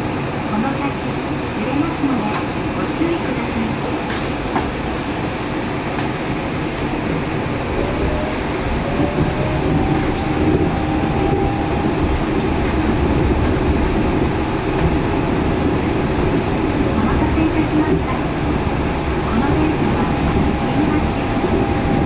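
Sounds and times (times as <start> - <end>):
train running gear rumble: 1.2 - 22.0
rising motor whine: 7.6 - 13.6.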